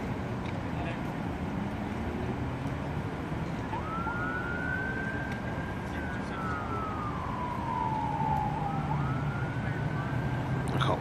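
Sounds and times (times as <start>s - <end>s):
emergency siren wailing: 3.2s - 11.0s.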